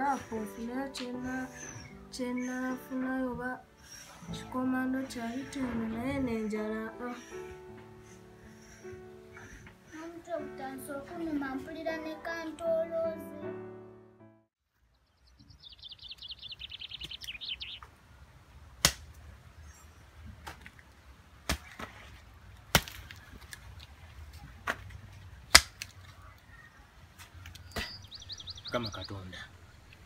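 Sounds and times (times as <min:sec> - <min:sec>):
background music with singing: 0:00.0 - 0:08.4, 0:09.5 - 0:13.7
bird trilling: 0:15.5 - 0:17.8, 0:27.6 - 0:29.9
hoe chopping into soil: 0:21.4 - 0:23.2.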